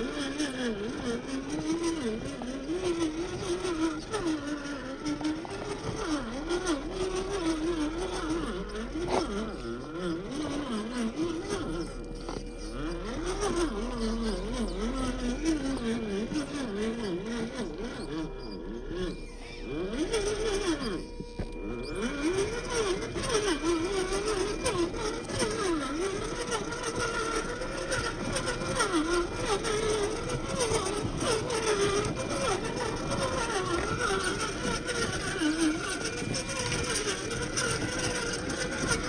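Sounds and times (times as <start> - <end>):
electric motor whining: 0.0 - 39.0.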